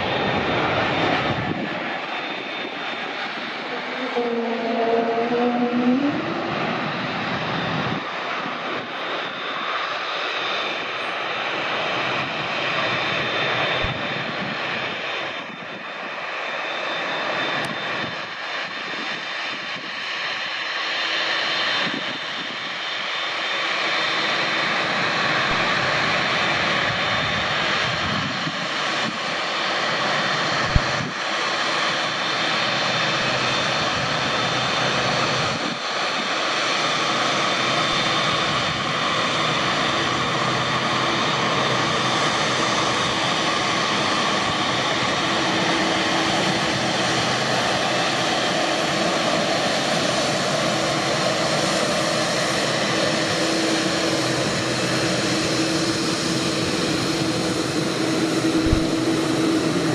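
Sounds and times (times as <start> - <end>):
jet engines rushing with whine: 0.0 - 59.9.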